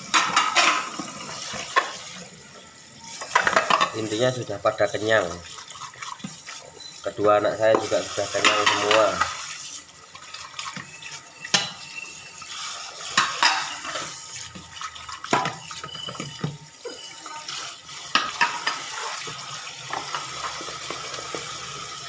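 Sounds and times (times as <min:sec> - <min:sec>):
dishes clinking and clattering: 0:00.0 - 0:04.4, 0:07.6 - 0:09.4, 0:10.1 - 0:21.9
running tap water: 0:00.0 - 0:22.0.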